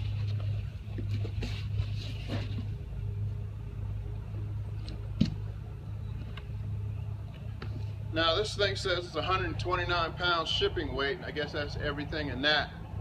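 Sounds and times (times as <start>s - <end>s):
low mechanical hum: 0.0s - 13.0s
cardboard box scraping and rustling: 1.1s - 2.7s.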